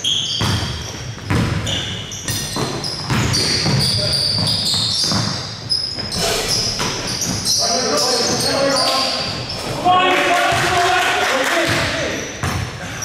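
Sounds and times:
sneakers squeaking on gym floor: 0.0s - 10.0s, 11.8s - 13.0s
basketball bouncing: 0.3s - 6.1s, 11.7s - 12.8s.

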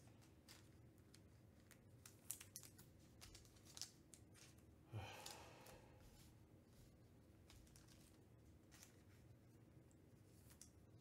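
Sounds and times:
soft rush of breath-like noise: 4.9s - 6.5s.

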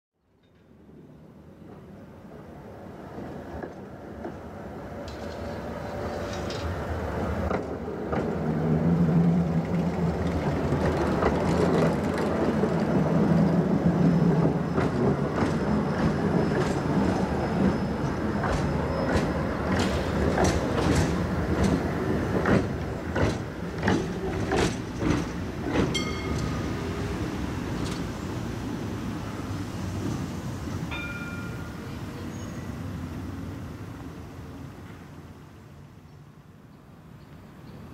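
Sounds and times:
tram running hum: 0.4s - 37.9s
tram wheels clacking over rails: 3.2s - 32.3s.

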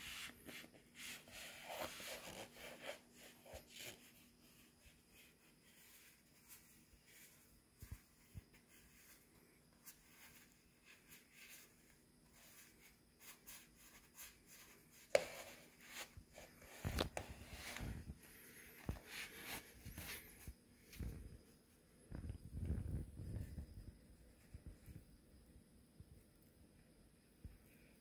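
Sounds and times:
sock fabric rubbing on skin: 0.0s - 21.3s.

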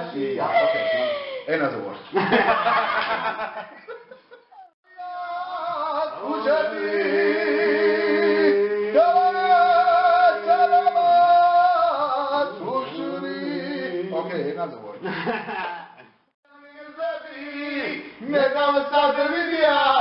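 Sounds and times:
voices part-singing over drone: 5.1s - 14.2s.

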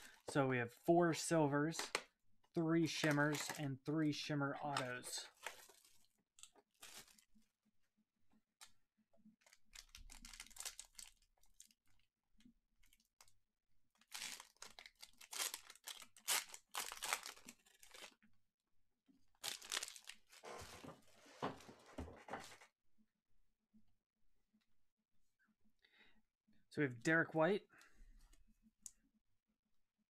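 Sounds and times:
foil wrapper tearing and crinkling: 9.5s - 11.7s, 14.0s - 18.2s, 19.4s - 20.4s.

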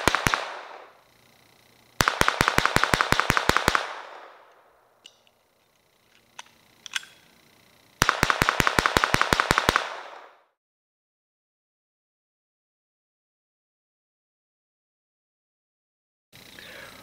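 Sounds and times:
pistol firing rapid shots: 0.0s - 0.9s, 2.0s - 4.5s, 8.0s - 10.5s.

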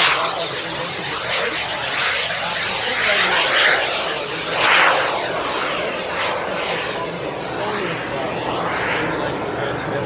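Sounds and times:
small jet engine rushing: 0.0s - 10.0s.

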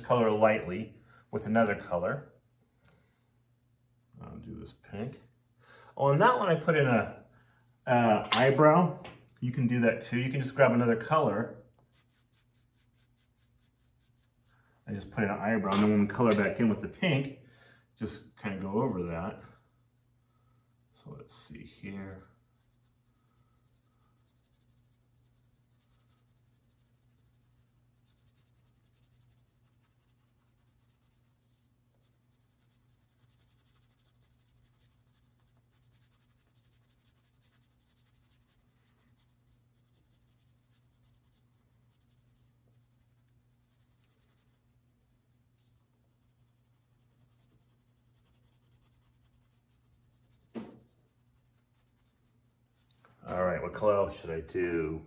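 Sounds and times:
low steady hum: 0.0s - 55.0s
crayon scratching on paper: 22.7s - 44.6s, 45.6s - 52.3s
short knock: 50.5s - 50.9s.

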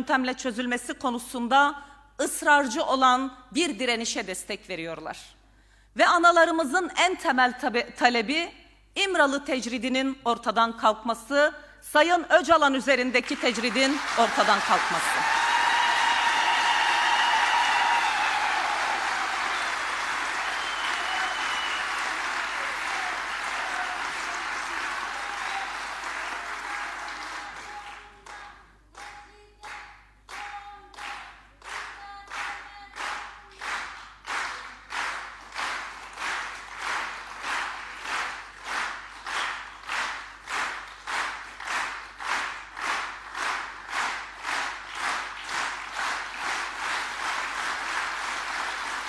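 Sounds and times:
rhythmic clapping in unison: 13.2s - 49.0s
crowd applauding: 13.3s - 28.5s, 31.7s - 49.0s.

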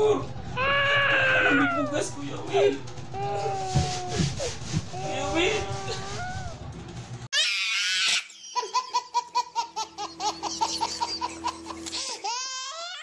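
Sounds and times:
baby laughing: 7.4s - 13.0s.

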